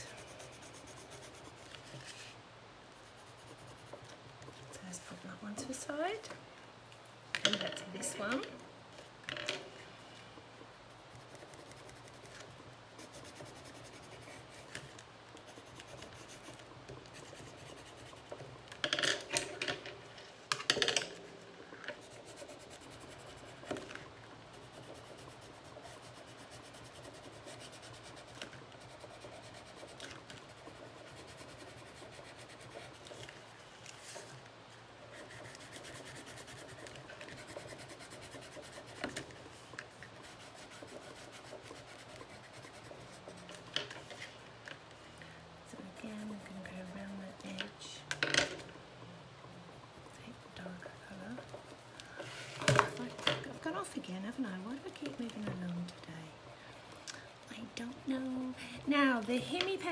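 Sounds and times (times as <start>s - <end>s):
pencil scratching on paper: 0.0s - 2.2s, 3.0s - 4.2s, 11.0s - 18.4s, 22.0s - 23.9s, 24.5s - 33.1s, 35.1s - 39.2s, 40.1s - 43.6s, 45.8s - 47.6s, 49.7s - 52.0s, 52.8s - 59.9s.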